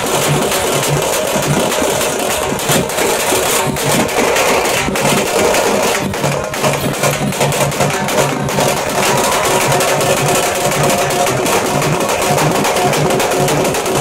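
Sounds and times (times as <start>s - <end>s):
crowd din: 0.0s - 14.0s
festival drumming: 0.0s - 14.0s.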